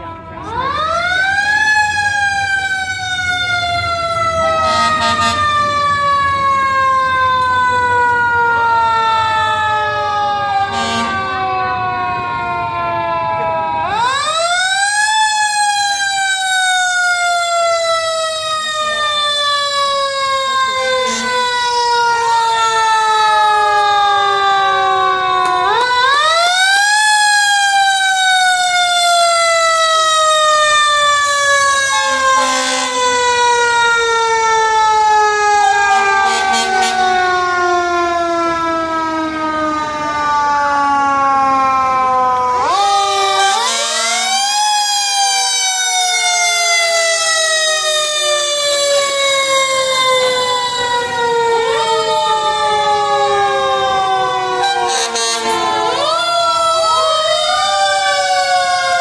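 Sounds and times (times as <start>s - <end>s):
fire engine sirens wailing: 0.0s - 59.0s
horn blasts: 4.6s - 5.5s, 10.7s - 11.4s, 21.0s - 21.5s, 32.1s - 33.2s, 36.0s - 37.2s, 54.6s - 56.1s.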